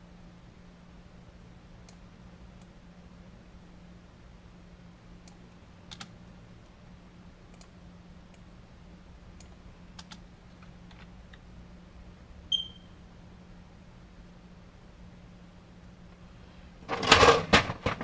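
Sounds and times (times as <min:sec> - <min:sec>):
low steady hum: 0:00.0 - 0:18.0
keyboard and mouse clicks: 0:05.2 - 0:06.2, 0:09.4 - 0:10.2
short high-pitched beep: 0:12.5 - 0:13.0.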